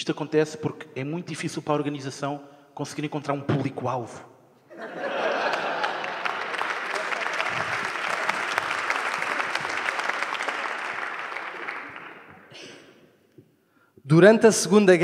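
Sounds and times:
audience applauding: 5.0 - 12.6.

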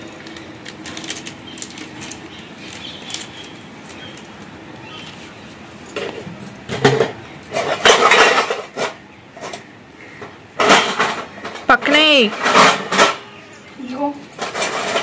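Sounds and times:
dishes and cutlery clattering: 5.8 - 9.6, 10.6 - 13.4, 14.3 - 15.0.

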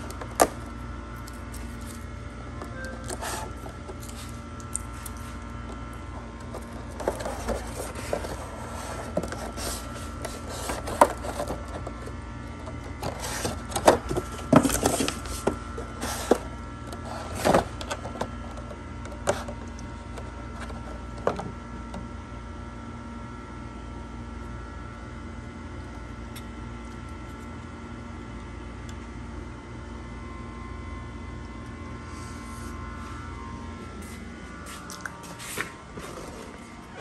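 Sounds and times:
steady hum: 0.0 - 37.0.

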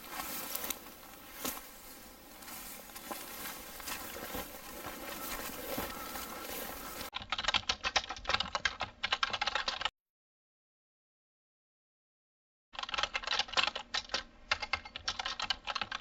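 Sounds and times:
rapid keyboard typing: 0.0 - 9.9, 12.8 - 16.0.

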